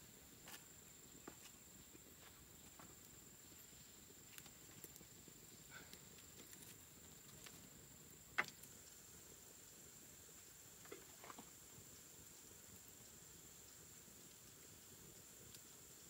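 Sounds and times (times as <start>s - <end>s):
wood fire crackling: 0.0s - 16.0s
sharp snap of fire: 8.3s - 9.0s.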